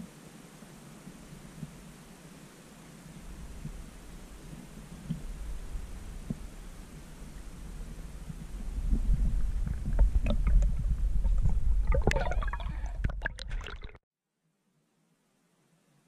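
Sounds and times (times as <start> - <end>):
underwater water rumble: 3.2 - 14.0.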